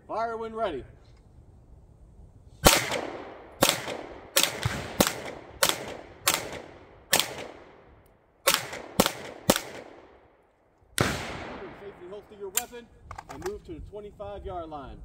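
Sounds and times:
pistol shots with echo: 0:02.6 - 0:10.2, 0:11.0 - 0:12.7.

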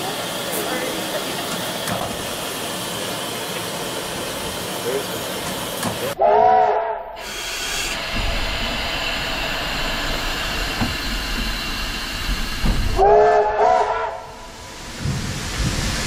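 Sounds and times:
steam hissing: 0:00.0 - 0:06.2, 0:07.2 - 0:16.0
steam locomotive whistle: 0:06.2 - 0:08.0, 0:12.9 - 0:14.5.

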